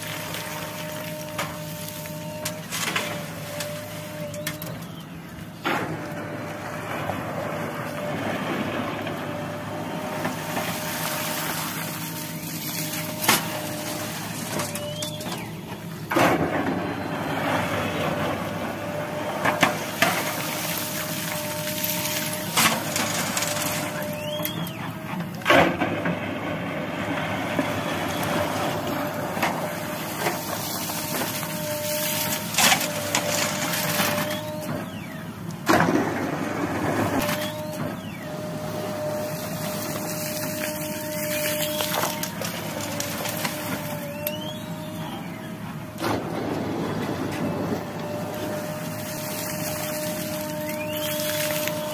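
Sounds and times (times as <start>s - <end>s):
diesel engine under load: 0.0s - 51.9s
hydraulic whine: 0.0s - 51.9s.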